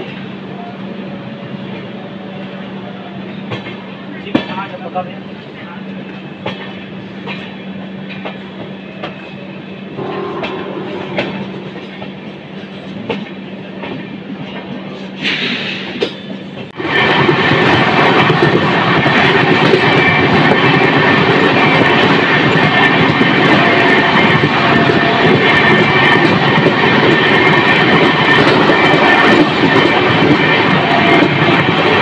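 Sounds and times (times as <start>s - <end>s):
train interior hum: 0.0s - 32.0s
train rushing rumble: 0.0s - 32.0s
train wheels clicking over rail joints: 6.0s - 9.4s, 10.3s - 32.0s.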